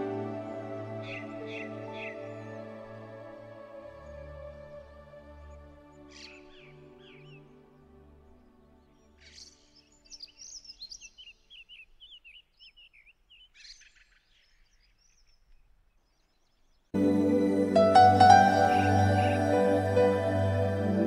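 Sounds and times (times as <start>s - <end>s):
loud new-age music: 0.0s - 8.4s, 17.0s - 21.0s
soft background music: 0.0s - 11.4s, 17.0s - 21.0s.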